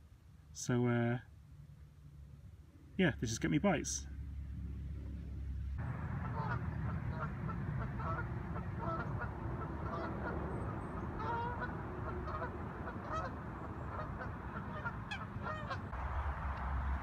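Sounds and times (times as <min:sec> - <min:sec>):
steady low rumble: 0:00.0 - 0:17.0
geese honking: 0:05.8 - 0:17.0.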